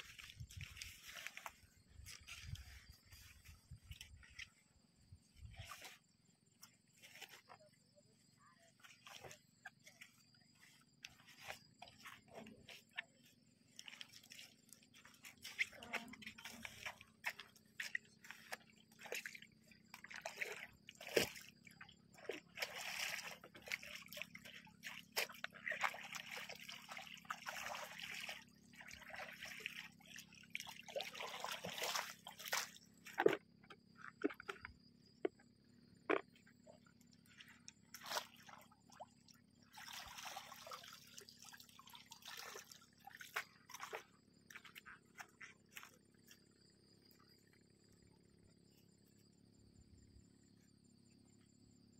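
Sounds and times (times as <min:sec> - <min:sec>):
water splashing and dripping: 0:00.0 - 0:04.5, 0:13.7 - 0:34.7, 0:37.2 - 0:45.9.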